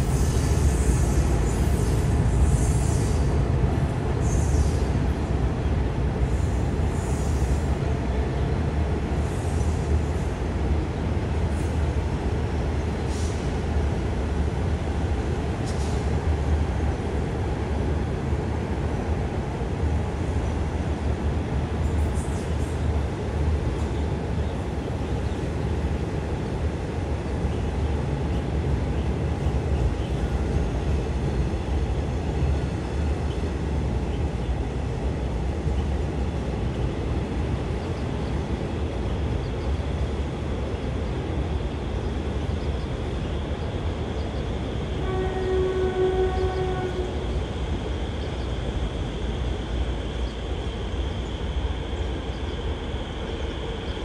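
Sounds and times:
train rumbling past: 0.0s - 54.0s
train horn: 45.0s - 47.3s.

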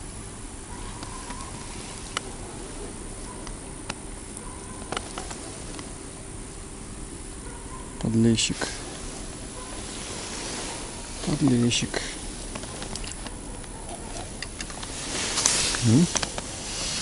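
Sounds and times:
low background hiss: 0.0s - 17.0s
faint sharp clicks: 0.9s - 2.4s, 3.2s - 6.6s, 12.4s - 16.5s.

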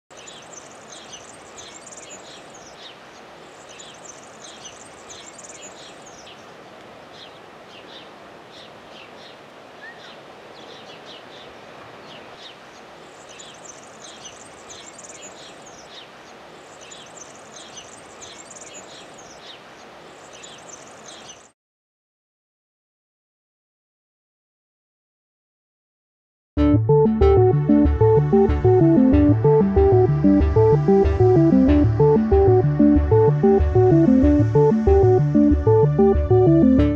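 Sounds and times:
sparrow chirping: 0.1s - 3.0s, 3.6s - 6.4s, 12.1s - 16.1s, 16.7s - 19.6s, 20.2s - 21.5s
outdoor background hiss: 0.1s - 21.6s.

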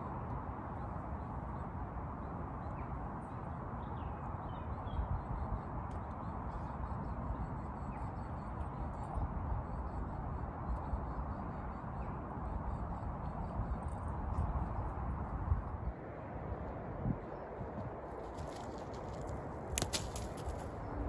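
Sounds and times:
wind buffeting microphone: 12.2s - 21.0s.

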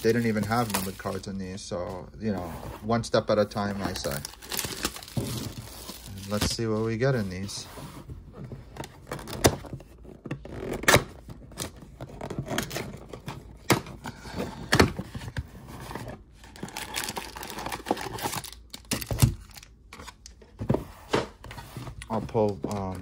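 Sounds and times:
foil packs rustling: 0.0s - 1.6s, 3.5s - 7.6s, 16.5s - 19.7s
cardboard scraping: 0.0s - 18.5s, 20.5s - 23.0s
cardboard tearing: 3.7s - 6.6s, 15.8s - 19.6s.

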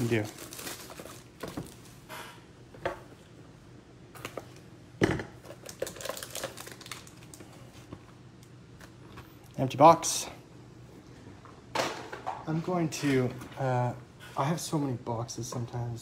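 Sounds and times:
foil crinkling: 0.0s - 2.0s, 5.5s - 7.7s.

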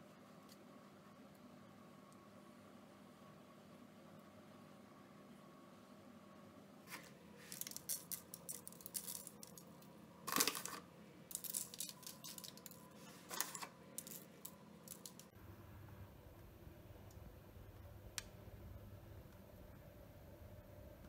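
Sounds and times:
seeds pattering on buns: 6.9s - 10.7s, 11.3s - 15.4s.

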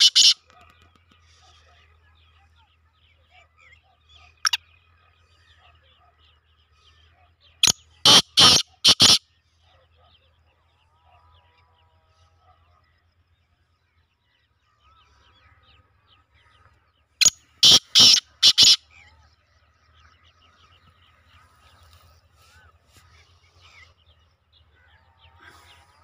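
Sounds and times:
faint birds chirping: 0.0s - 26.0s
francolin calling harsh notes: 17.2s - 18.8s.

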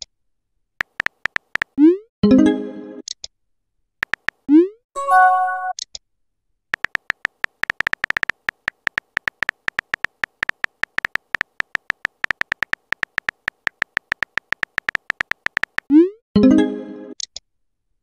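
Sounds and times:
phone keyboard typing clicks: 0.8s - 1.8s, 4.0s - 4.5s, 6.7s - 15.9s.

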